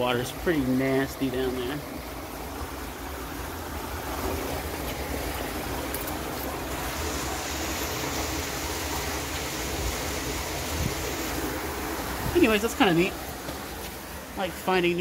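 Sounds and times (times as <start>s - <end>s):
wind buffeting microphone: 10.6s - 11.2s.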